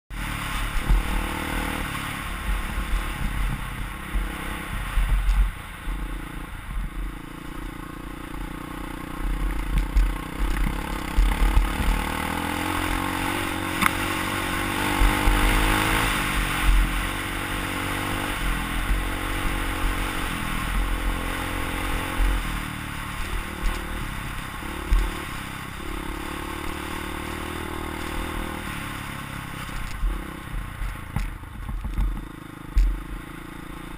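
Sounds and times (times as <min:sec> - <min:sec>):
dirt bike engine revving: 0:00.1 - 0:31.3
bike rattling and clattering: 0:00.2 - 0:33.9
wind buffeting microphone: 0:00.6 - 0:07.2.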